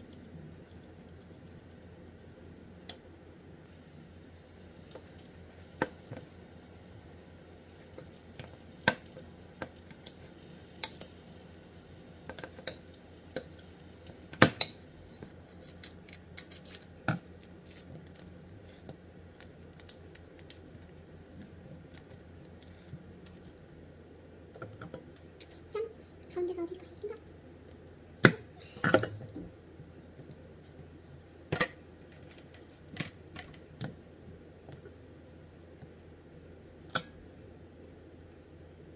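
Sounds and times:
low steady hum: 0.0 - 38.9.

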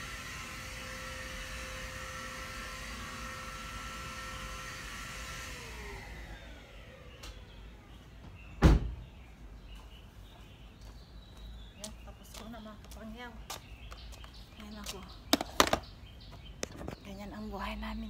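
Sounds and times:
vacuum cleaner whining: 0.0 - 7.9
loud thump: 8.6 - 9.0.

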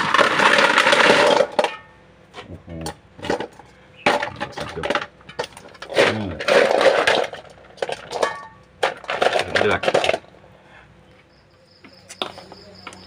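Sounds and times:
shells clattering in metal bowl: 0.0 - 2.0, 2.8 - 10.3.

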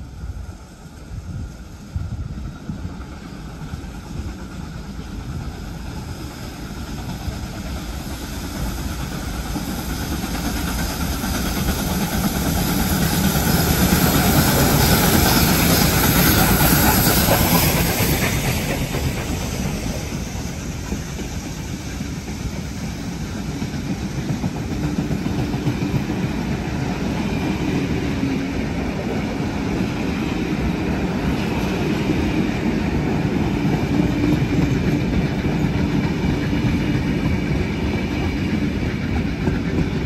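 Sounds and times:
steam hissing: 0.0 - 40.0
steam train passing: 0.0 - 40.0.

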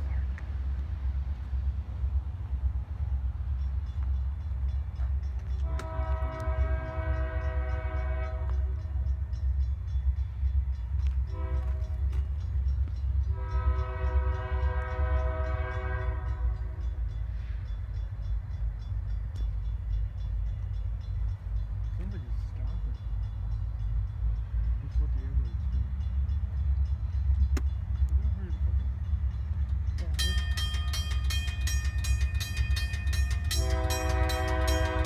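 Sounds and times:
train rumbling: 0.0 - 35.0
locomotive air horn blasts: 5.6 - 8.8, 11.3 - 12.0, 13.3 - 16.8, 33.5 - 35.0.

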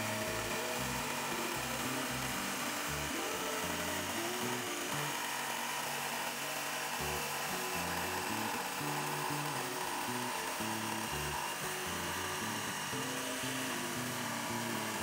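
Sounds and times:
electric jigsaw cutting wood: 0.0 - 15.0.

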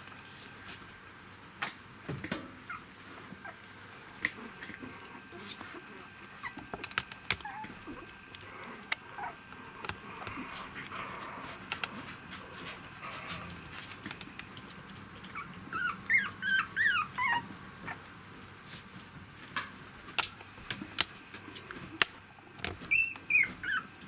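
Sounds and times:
puppies squeaking and whimpering: 6.4 - 6.7, 7.4 - 8.1, 15.2 - 18.0, 22.8 - 24.0.

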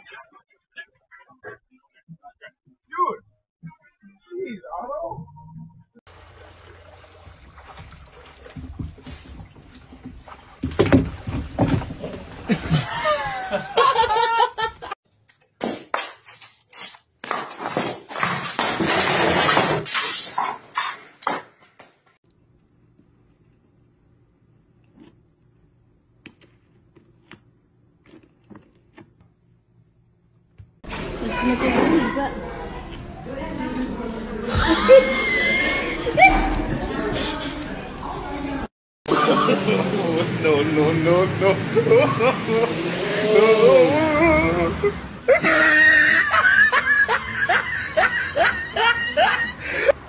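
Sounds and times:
water splashing and lapping: 6.1 - 13.8.

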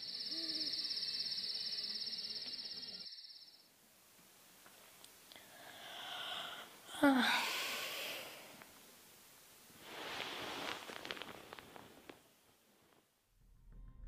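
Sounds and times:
woman gasping: 5.4 - 8.5
woman breathing heavily: 5.4 - 8.6
rustling with small clicks: 10.1 - 13.1.

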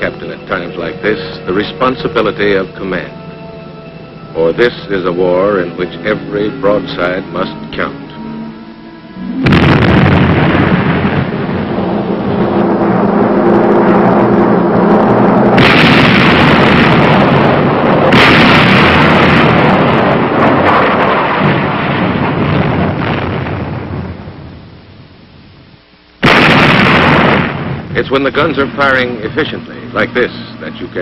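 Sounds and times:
heavy gun blasts: 9.4 - 24.2, 26.2 - 29.6.

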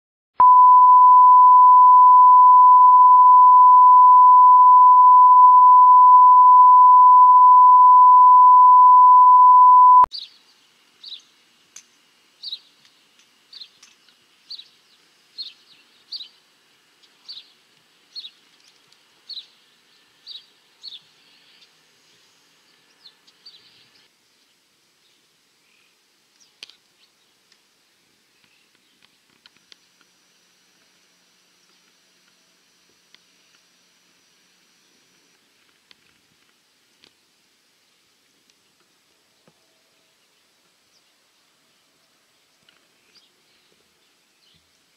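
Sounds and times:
faint steady high note: 0.4 - 10.1
loud steady test tone: 0.4 - 10.1.

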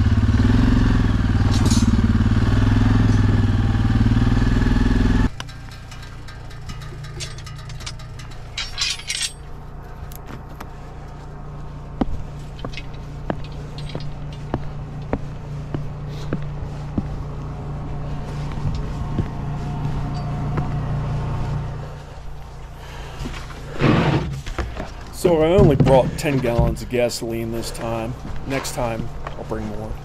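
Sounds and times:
atv engine running: 0.0 - 30.0
knocks and metallic clinks: 5.3 - 10.4, 12.0 - 15.2, 18.6 - 20.9.

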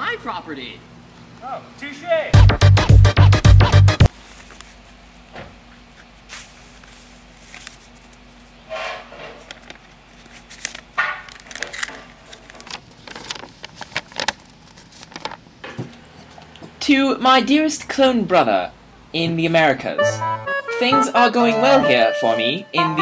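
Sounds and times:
paper rustling and crinkling: 4.1 - 5.0, 5.8 - 8.6, 9.2 - 15.4.

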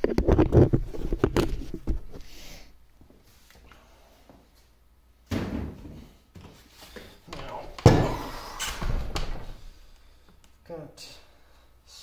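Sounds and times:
scraping and handling noise: 0.0 - 2.3.

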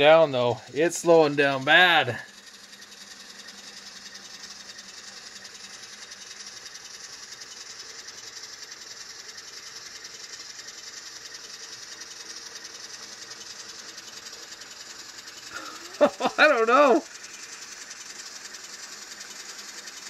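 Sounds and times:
model train motor whirring: 0.0 - 20.0.

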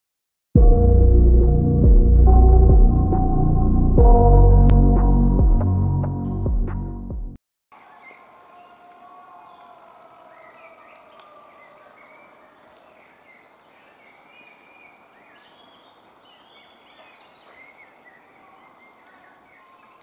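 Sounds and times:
songbirds chirping: 7.7 - 20.0.

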